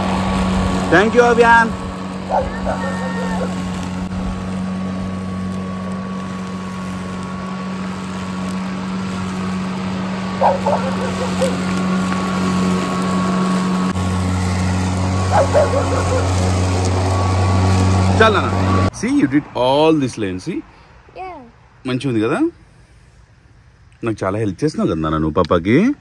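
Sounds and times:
electric lawn mower humming: 0.0 - 18.9.

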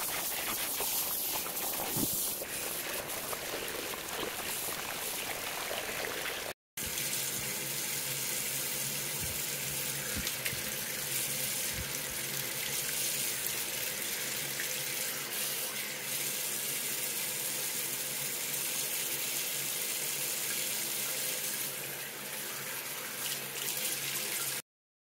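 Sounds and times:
water splashing over dog: 0.0 - 6.6.

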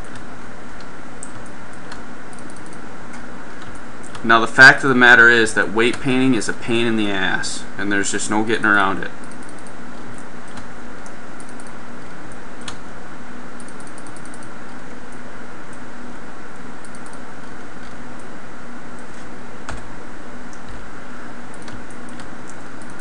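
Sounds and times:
computer keys and mouse clicks: 0.0 - 4.2, 9.2 - 12.8, 13.6 - 15.8, 16.8 - 18.3, 21.5 - 23.0
faint low hum: 0.0 - 23.0.

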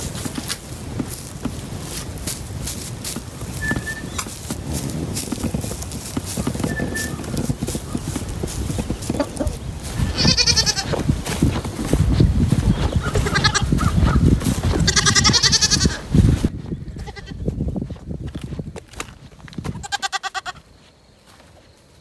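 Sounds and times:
goats bleating: 9.1 - 11.1, 13.0 - 14.0, 14.6 - 16.1, 17.0 - 17.4, 19.8 - 20.6.

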